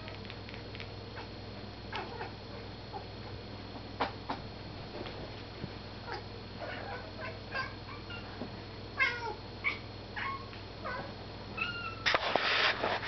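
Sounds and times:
cat chirping and meowing: 9.0 - 12.1.

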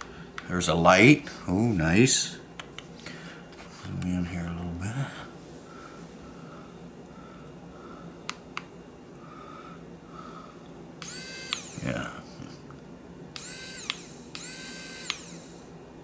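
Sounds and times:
electric screwdriver motor whining: 11.0 - 11.9, 13.4 - 15.6.

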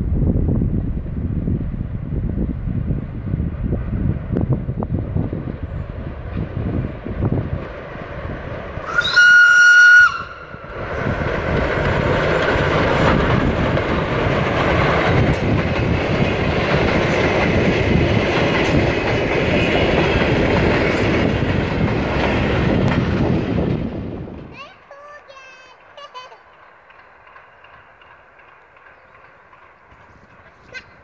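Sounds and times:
steam train passing: 0.0 - 31.0
steam locomotive whistle blast: 8.8 - 10.5
wheels clicking over rail joints: 10.7 - 31.0.

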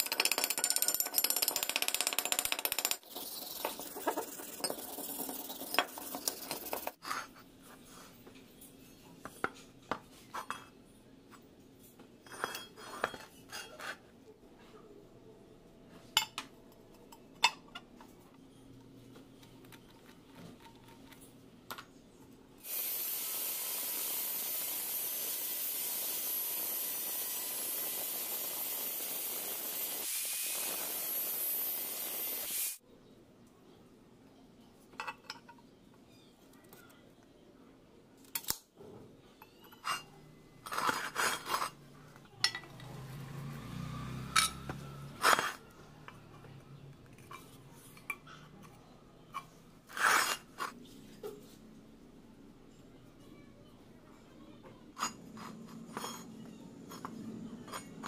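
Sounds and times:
metal tools knocking and clinking: 34.9 - 35.7, 42.4 - 42.8.

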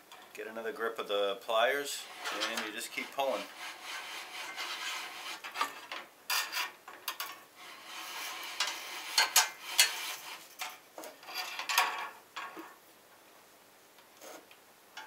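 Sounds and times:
wire insulation rasping on blade: 2.0 - 12.0, 14.2 - 14.6.

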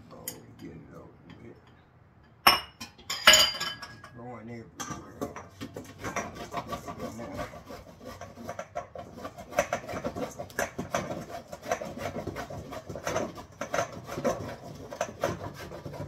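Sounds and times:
food grated on metal grater: 5.1 - 16.0.

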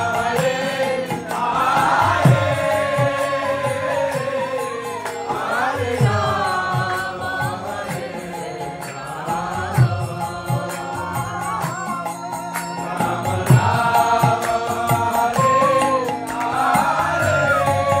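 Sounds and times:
harmonium: 0.0 - 18.0.

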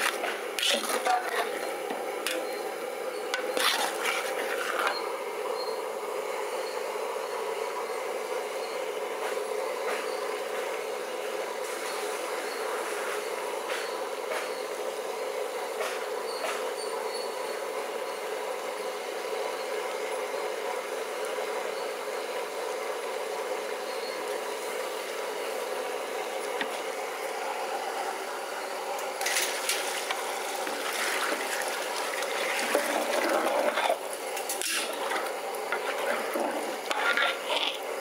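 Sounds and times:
metal ladle scraping pot: 0.0 - 2.6, 3.2 - 5.0, 32.2 - 38.0
curry simmering and bubbling: 3.3 - 5.1, 30.0 - 38.0.

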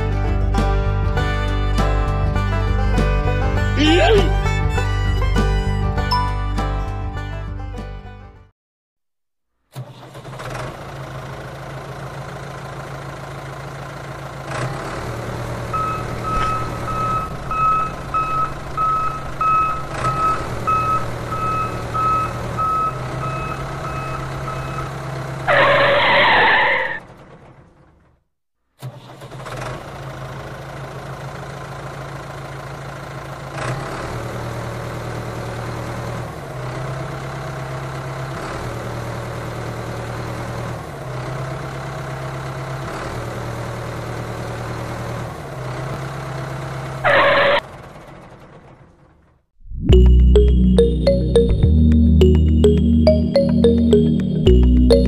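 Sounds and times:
tractor engine running: 9.7 - 28.2, 28.8 - 55.0
reversing beeper: 15.7 - 25.0, 49.7 - 55.0.

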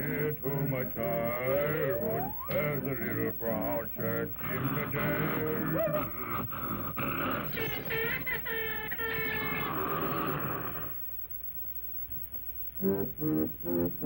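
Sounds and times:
held note: 1.6 - 2.7.

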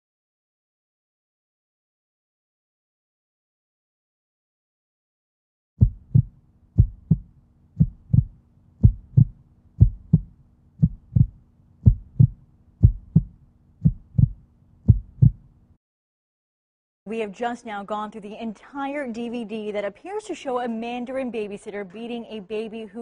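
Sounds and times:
heartbeat thumps: 5.8 - 15.5.

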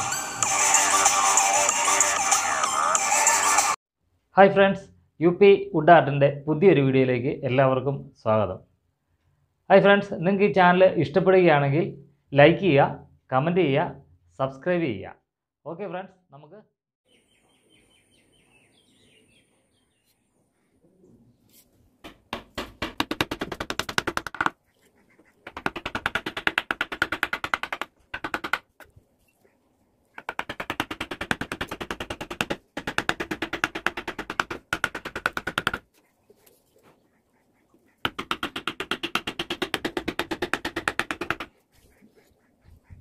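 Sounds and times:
mallet tapping carving gouge: 22.0 - 24.6, 25.4 - 28.8, 30.2 - 35.8, 38.0 - 41.6.

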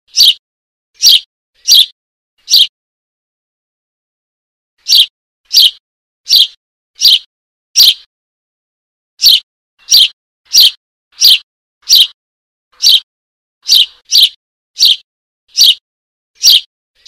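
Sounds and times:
bird chick chirping: 0.1 - 0.4, 1.0 - 2.7, 4.8 - 8.1, 9.2 - 12.2, 12.8 - 15.8, 16.4 - 16.7.

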